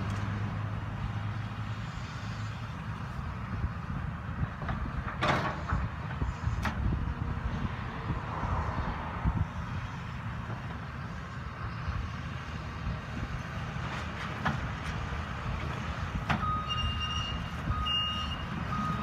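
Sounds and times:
excavator diesel engine running: 0:09.4 - 0:19.0.

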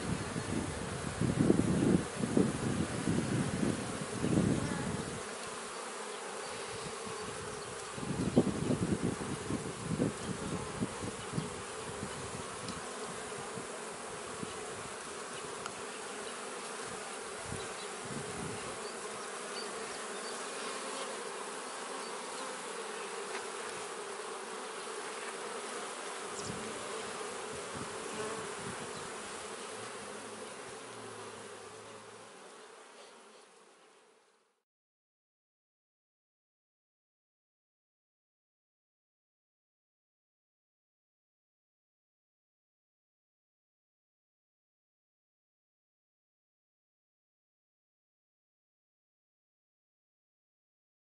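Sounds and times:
bees buzzing: 0:00.0 - 0:34.2.

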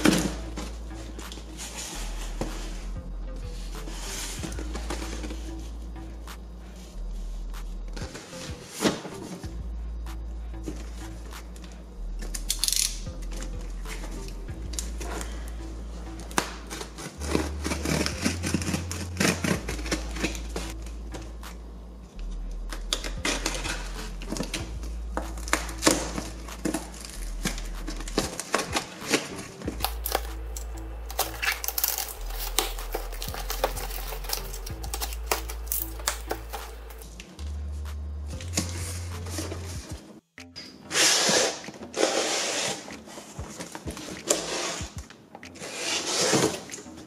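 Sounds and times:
background music with bass line: 0:00.0 - 0:47.0
utility knife slicing tape: 0:40.9 - 0:42.9, 0:45.5 - 0:46.9.

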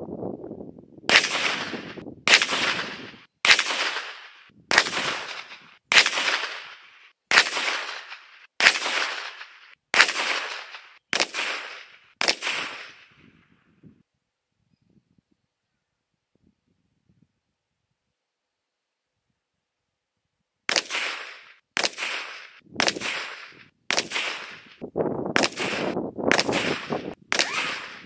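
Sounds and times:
pistol shots echoing: 0:01.1 - 0:13.1, 0:20.7 - 0:24.7, 0:25.4 - 0:28.0.

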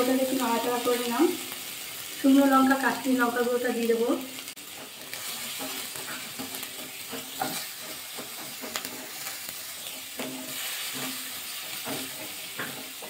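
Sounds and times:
oil frying with a steady hiss: 0:00.0 - 0:13.0
wooden spatula scraping a pan: 0:04.5 - 0:13.0.

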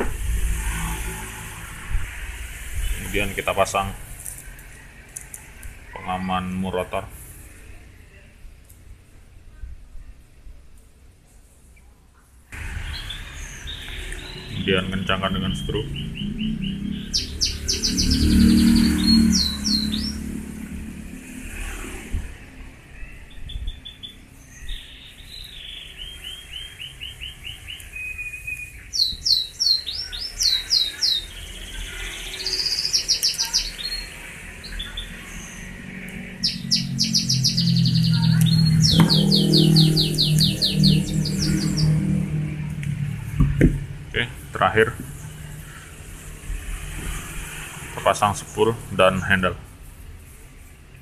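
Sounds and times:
birds chirping: 0:00.0 - 0:08.9, 0:11.7 - 0:51.0
low drone: 0:34.2 - 0:48.9.

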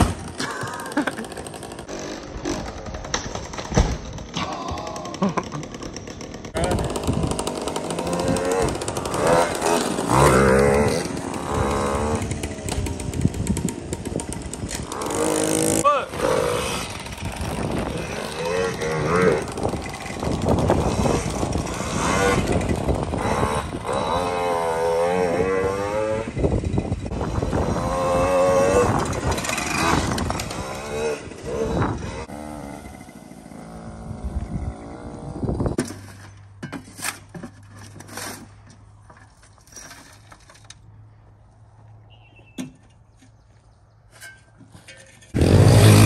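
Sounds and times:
dirt bike engine revving: 0:04.2 - 0:35.8, 0:45.3 - 0:46.0
shovel scraping dirt: 0:14.6 - 0:22.7, 0:35.6 - 0:40.8, 0:44.1 - 0:46.0
shovel clanking on metal wheelbarrow: 0:44.1 - 0:46.0.

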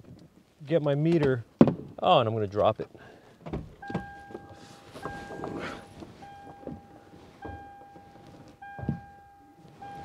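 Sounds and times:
handling knocks and rustling: 0:03.4 - 0:10.0
dashboard warning chime beeping: 0:03.8 - 0:10.0.

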